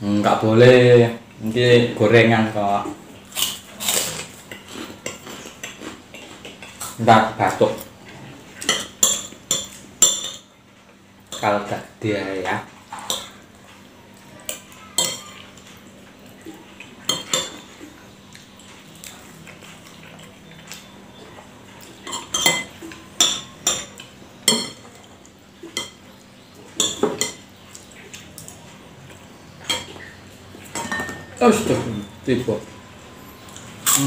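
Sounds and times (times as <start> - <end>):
spoon clinking on ceramic plate: 30.8 - 31.4.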